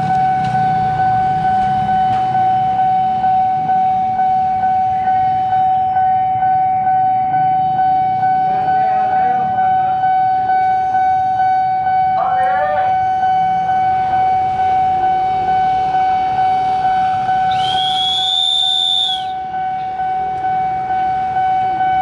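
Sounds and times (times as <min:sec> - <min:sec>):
level crossing alarm pulsing: 0:00.0 - 0:22.0.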